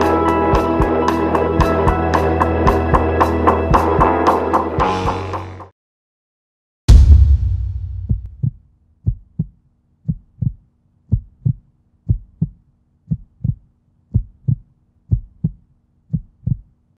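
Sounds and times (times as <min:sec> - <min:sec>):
heartbeat thumps: 0:06.9 - 0:16.7.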